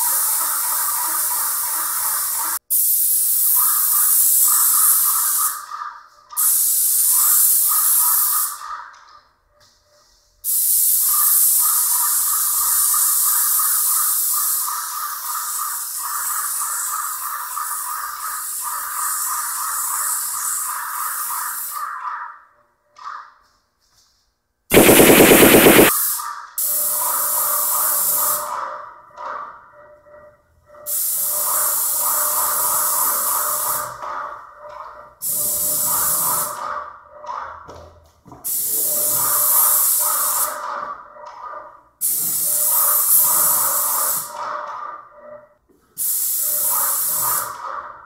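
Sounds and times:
loud rapid rattle: 0:24.7 - 0:25.9
paint sprayer hissing: 0:24.7 - 0:25.9.

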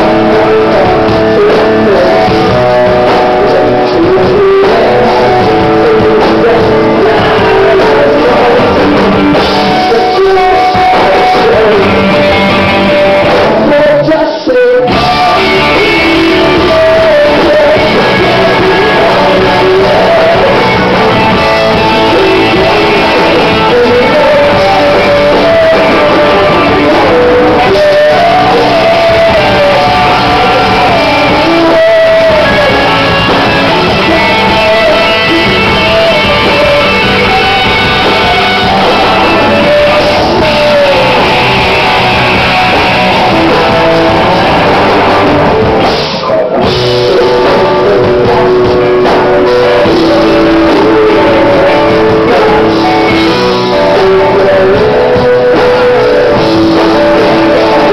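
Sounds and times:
loud rock band playing: 0:00.0 - 0:57.9
person singing into microphone: 0:00.0 - 0:57.9.

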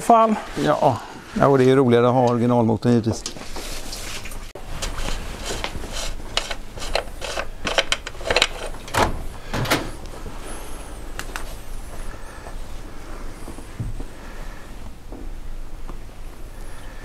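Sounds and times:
tools and metal parts clicking: 0:05.9 - 0:09.1.

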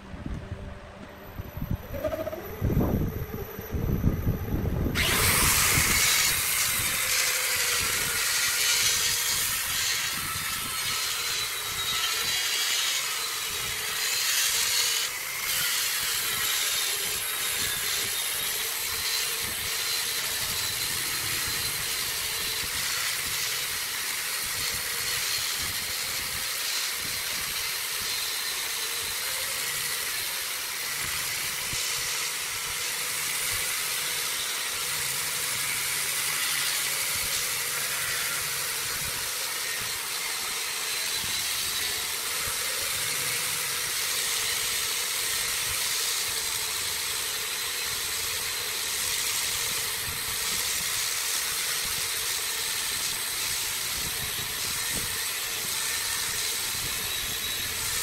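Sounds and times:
power tool cutting wood: 0:01.7 - 0:58.0.

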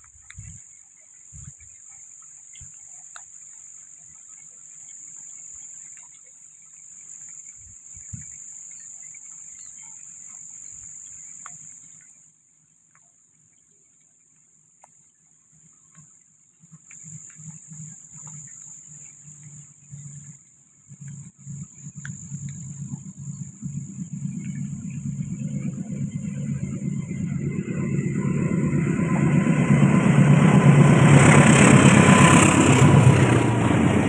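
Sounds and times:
diesel locomotive rumble: 0:20.9 - 0:34.0.

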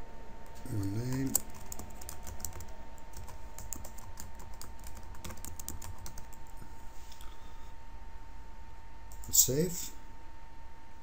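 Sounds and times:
computer keyboard typing: 0:00.4 - 0:06.6.

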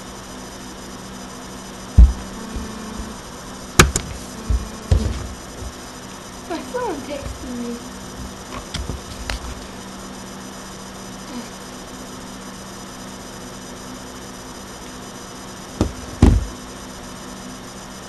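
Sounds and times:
microphone hiss and hum: 0:01.2 - 0:10.2, 0:15.7 - 0:16.8
light knocks on desk: 0:02.0 - 0:03.1, 0:15.8 - 0:16.6
thumps on desk: 0:02.0 - 0:03.2, 0:03.8 - 0:05.8, 0:07.2 - 0:07.6, 0:15.8 - 0:16.6.

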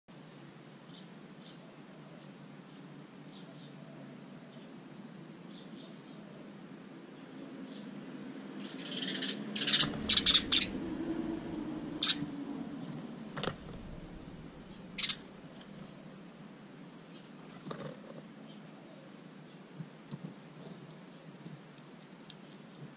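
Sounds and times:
sparrow chirping: 0:08.6 - 0:12.4, 0:13.4 - 0:16.1.

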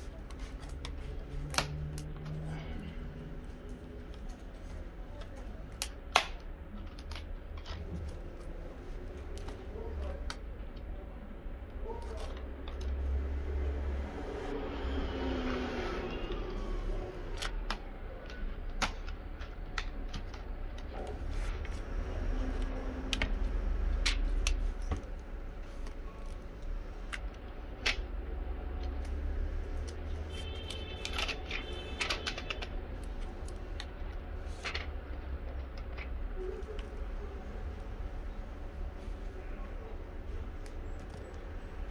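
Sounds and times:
plastic clicks and snaps: 0:00.2 - 0:02.4, 0:03.4 - 0:08.5, 0:17.3 - 0:21.0.

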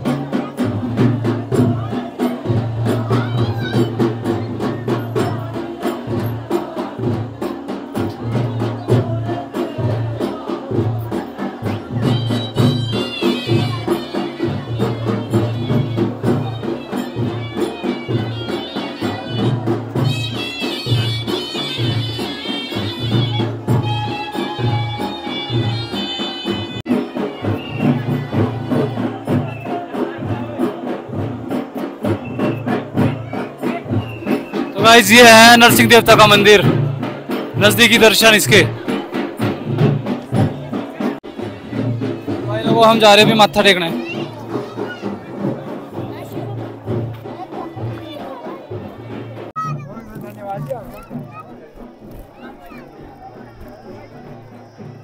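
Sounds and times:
deep booming drum: 0:00.0 - 0:17.4, 0:19.3 - 0:52.2
folk drumming dance beat: 0:00.0 - 0:55.0
reed pipe melody: 0:12.0 - 0:29.6.

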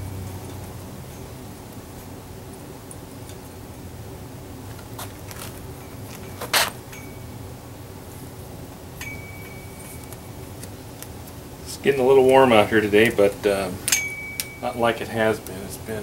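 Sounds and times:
tape crackling: 0:04.5 - 0:07.0, 0:09.0 - 0:16.0
tape ripping: 0:04.7 - 0:06.8.

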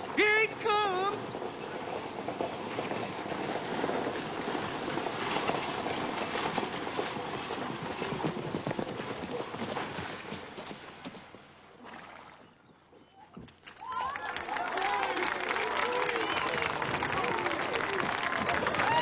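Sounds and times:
horse hooves clip-clopping: 0:01.0 - 0:11.8, 0:16.3 - 0:19.0.

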